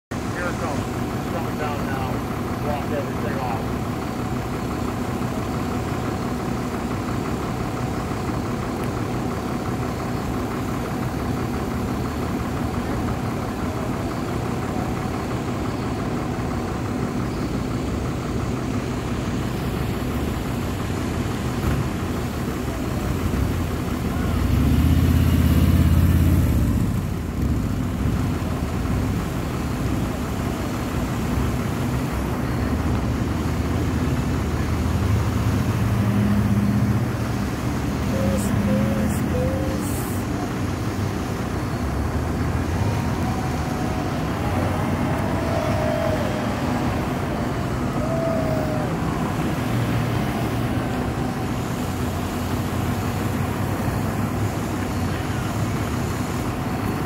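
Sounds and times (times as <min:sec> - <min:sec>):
vehicle engines idling: 0:00.1 - 0:57.0
vehicle passing close by: 0:41.9 - 0:53.3.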